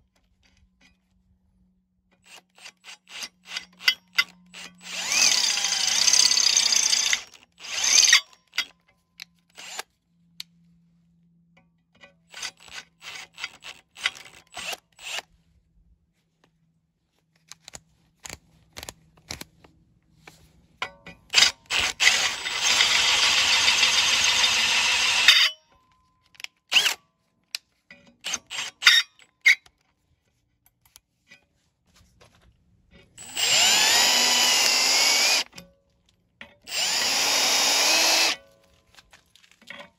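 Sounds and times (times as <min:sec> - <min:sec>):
cordless drill drilling through steel: 0:02.2 - 0:08.7, 0:09.5 - 0:09.8, 0:12.3 - 0:15.3, 0:21.3 - 0:25.6, 0:26.7 - 0:27.0, 0:28.2 - 0:29.6, 0:33.2 - 0:35.6, 0:36.6 - 0:38.5.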